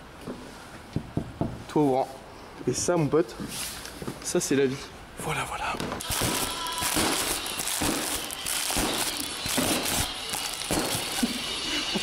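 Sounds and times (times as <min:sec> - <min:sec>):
bubble wrap crinkling: 0:06.0 - 0:11.5.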